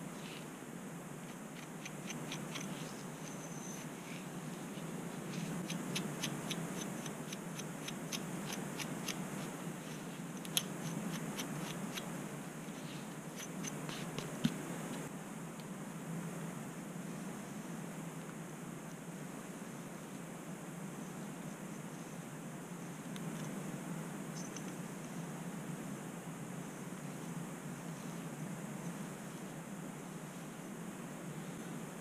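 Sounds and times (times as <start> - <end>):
scratching and combing through hair: 1.3 - 12.2, 12.8 - 15.1.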